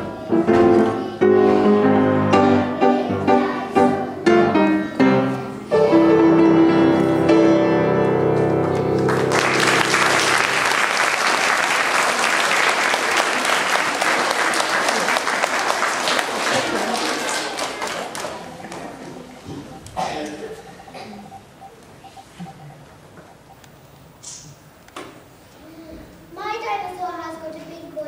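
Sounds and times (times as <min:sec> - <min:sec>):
piano chords: 0:00.0 - 0:11.2
audience applause: 0:08.7 - 0:19.4.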